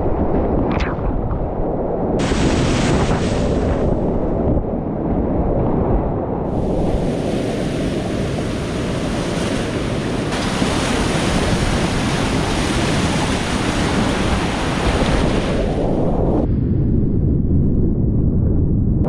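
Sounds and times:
wind buffeting microphone: 0.0s - 19.0s
whitewater rapids rushing: 7.1s - 15.8s.

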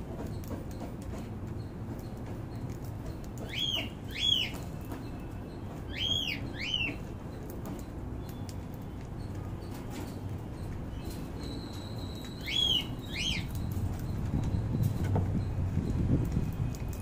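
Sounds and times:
cockatiel whistling: 3.5s - 4.6s, 5.9s - 7.0s, 11.4s - 13.6s.

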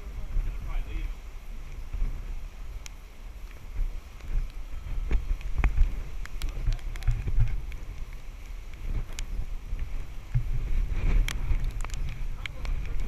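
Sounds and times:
storm wind buffeting microphone: 0.0s - 13.0s
light ticks: 2.8s - 9.3s, 11.2s - 13.0s.

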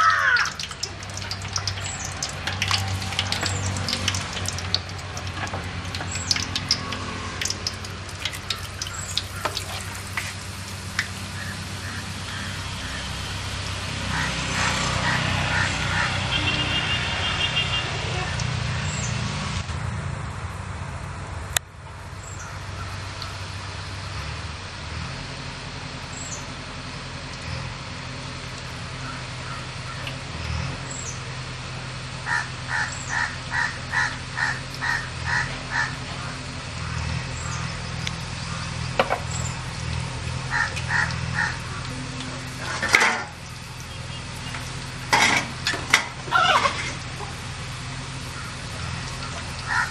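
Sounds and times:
crow cawing: 0.0s - 0.6s, 8.8s - 10.0s, 11.4s - 13.2s, 14.1s - 16.5s, 29.0s - 30.0s, 32.2s - 37.7s, 40.5s - 41.9s, 48.3s - 49.9s.

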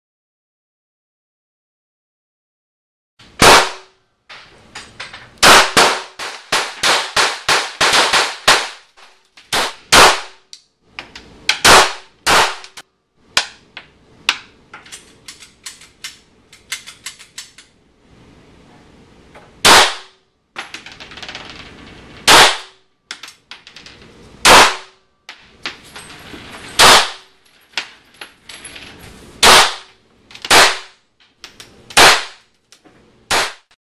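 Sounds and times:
pistol shots indoors: 3.3s - 4.5s, 5.4s - 10.5s, 11.5s - 13.6s, 19.6s - 20.3s, 22.2s - 23.1s, 24.4s - 25.2s, 26.7s - 27.9s, 29.4s - 31.1s, 31.9s - 32.5s, 33.3s - 33.7s.

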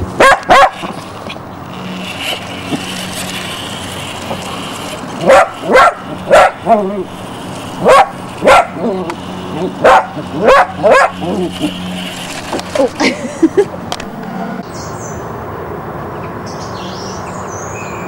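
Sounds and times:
puppy barking: 0.2s - 0.9s, 5.2s - 7.0s, 7.8s - 11.7s
toy car motor whirring: 0.4s - 14.4s.

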